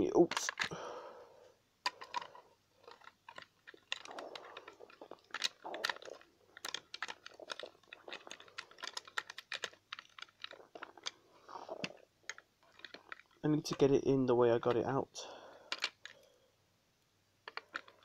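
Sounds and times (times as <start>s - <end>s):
plastic toy parts clicking: 0.2s - 0.8s, 1.8s - 13.9s, 15.7s - 16.3s, 17.4s - 18.0s.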